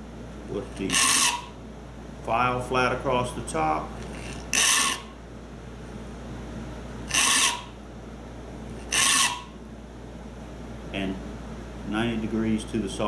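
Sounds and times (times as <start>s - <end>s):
file rasping across saw teeth: 0.8s - 1.5s, 4.1s - 5.1s, 7.1s - 7.7s, 8.8s - 9.5s.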